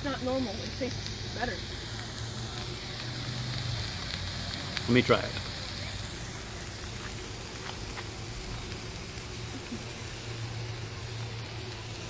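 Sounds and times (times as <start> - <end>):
meat sizzling on a grill: 0.0 - 12.0.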